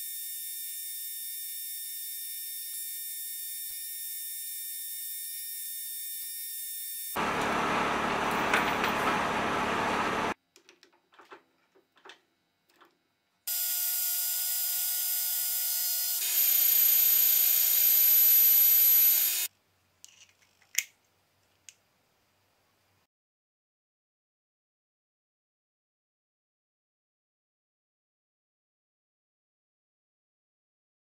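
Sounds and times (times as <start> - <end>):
lathe cutting metal: 7.2 - 10.4
high-pitched cutting whine: 13.5 - 19.5.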